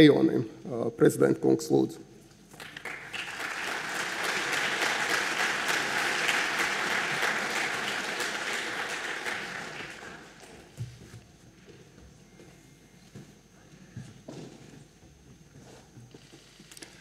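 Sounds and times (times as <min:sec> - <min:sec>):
audience applauding: 0:02.5 - 0:10.8.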